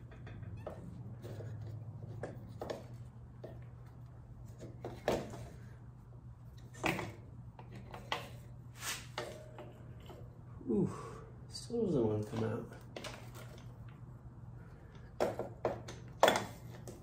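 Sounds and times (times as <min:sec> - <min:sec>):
metal clunks and knocks: 0:00.0 - 0:03.6
steady low hum: 0:00.0 - 0:17.0.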